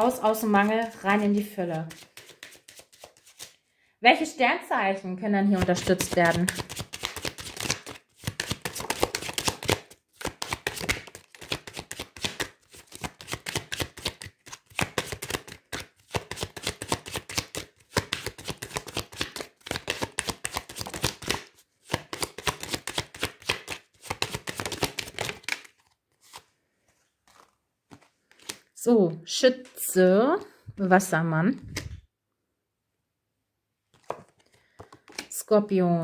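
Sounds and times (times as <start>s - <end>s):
cards being shuffled: 0.0s - 3.6s, 5.6s - 28.7s, 33.9s - 35.4s.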